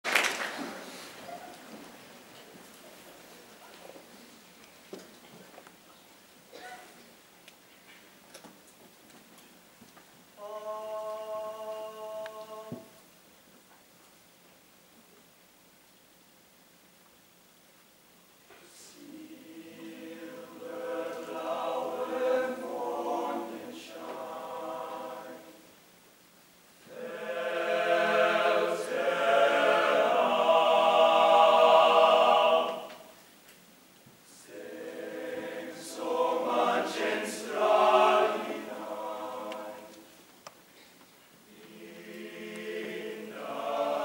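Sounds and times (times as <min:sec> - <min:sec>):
male choir singing: 0:10.4 - 0:12.9, 0:18.8 - 0:25.6, 0:26.9 - 0:33.1, 0:34.4 - 0:40.1, 0:41.5 - 0:44.0.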